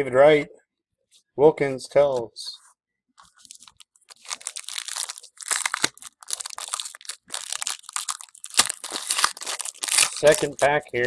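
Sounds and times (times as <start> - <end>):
foil wrapper crinkling and tearing: 3.2 - 10.8.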